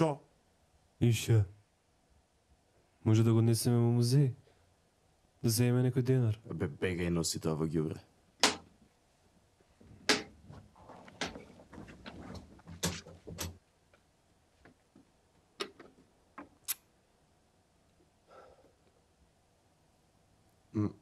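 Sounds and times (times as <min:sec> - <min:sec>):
radio set clicks and knocks: 0:08.4 - 0:08.7, 0:14.6 - 0:16.6
rustling knocks: 0:09.8 - 0:13.6.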